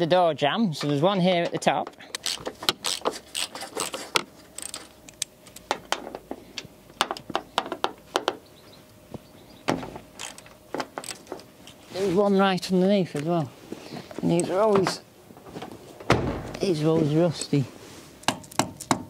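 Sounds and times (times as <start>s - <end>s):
ratchet wrench clicking: 2.1s - 5.6s, 10.2s - 11.2s.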